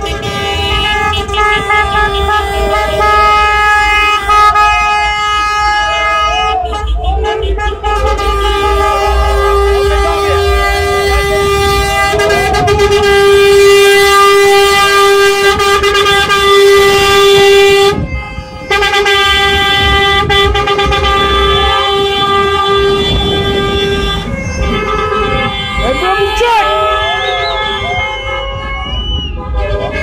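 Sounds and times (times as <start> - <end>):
low rumble of traffic: 0.0 - 30.0
vehicle horn blast: 0.0 - 30.0.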